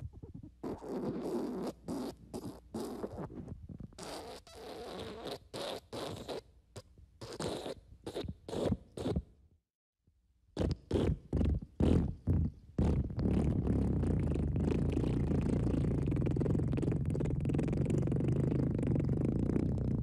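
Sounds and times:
fart blasts: 0.4 - 3.4, 10.6 - 20.0.

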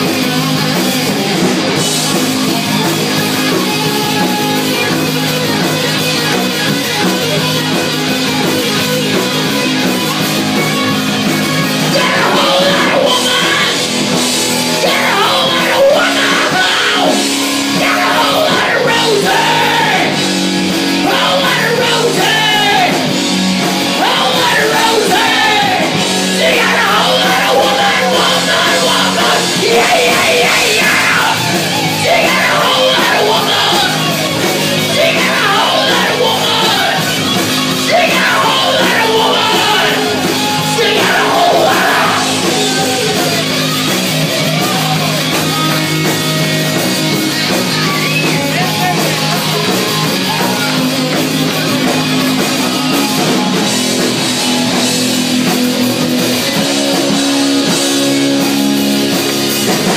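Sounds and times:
live rock band playing: 0.0 - 59.9
person singing: 11.5 - 14.0, 14.6 - 20.2, 21.0 - 23.1, 23.8 - 43.8.

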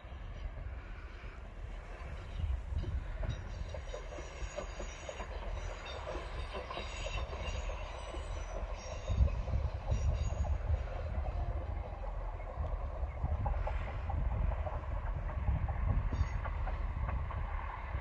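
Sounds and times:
train rumbling past: 0.0 - 18.0
wheels squealing: 1.8 - 12.5.

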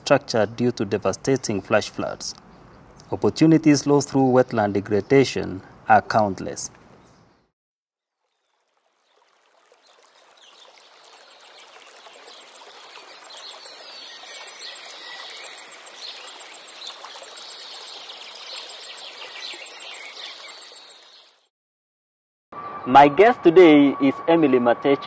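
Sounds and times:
running water: 8.2 - 21.5
birds chirping: 10.4 - 21.4.

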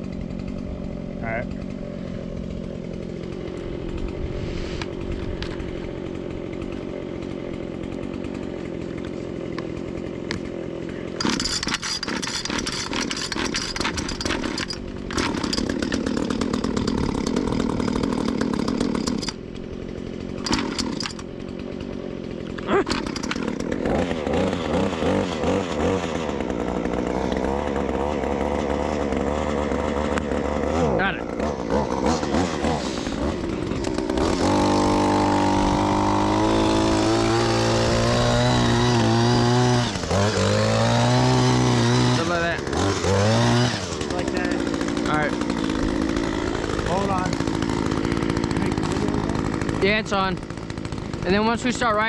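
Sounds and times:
atv engine revving: 0.0 - 52.0.

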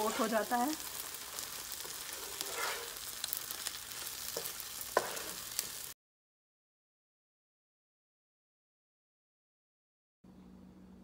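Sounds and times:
spatula stirring and scraping pan: 0.0 - 5.9
soft frying sizzle: 0.0 - 6.0
spatula knocking on pan: 4.3 - 5.3.

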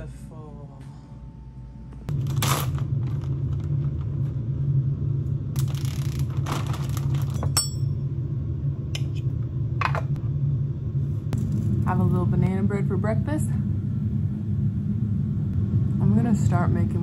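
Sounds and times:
low machinery hum: 0.0 - 17.0
plastic bag crinkling: 2.1 - 3.6, 5.6 - 7.4
ringing clink: 7.4 - 8.0.

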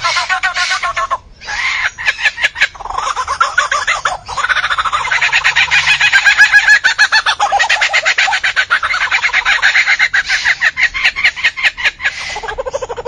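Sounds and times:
lyrebird singing: 0.0 - 13.0.

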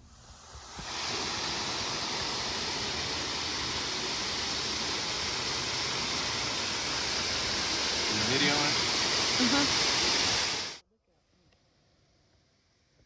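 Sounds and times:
waterfall rushing: 0.6 - 10.8.

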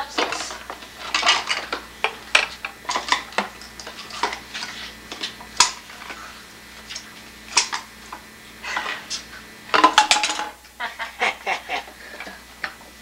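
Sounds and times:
plastic containers clattering: 0.0 - 6.2, 8.7 - 10.6.

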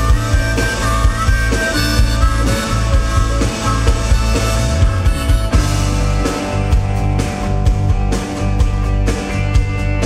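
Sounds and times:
harmonica: 0.0 - 7.2
bass guitar: 0.0 - 10.0
drum kit steady beat: 0.0 - 10.0
electric guitar: 0.0 - 10.0.

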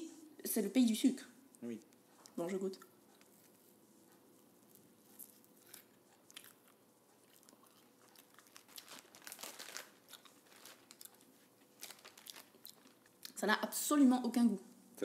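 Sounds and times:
marshmallow being chewed: 1.5 - 13.4.

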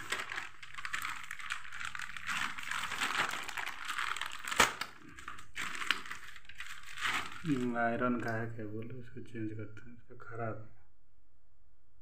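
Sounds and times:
plastic packaging crinkling: 0.0 - 8.5.

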